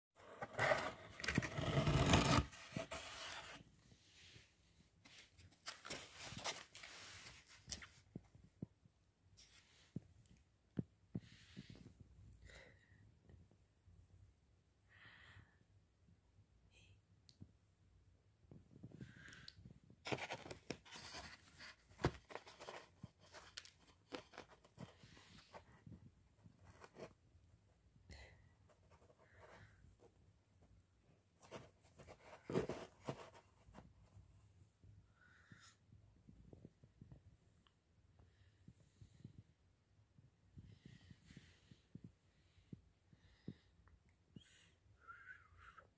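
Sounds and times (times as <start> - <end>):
cardboard box scraping: 0.2 - 3.6
cardboard rustles: 20.0 - 25.8, 31.4 - 34.0.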